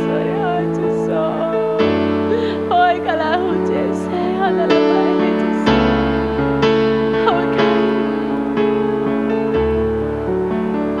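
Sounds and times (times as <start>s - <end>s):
woman singing wordless line: 0.0s - 8.4s
keyboard playing sustained chords: 0.0s - 11.0s.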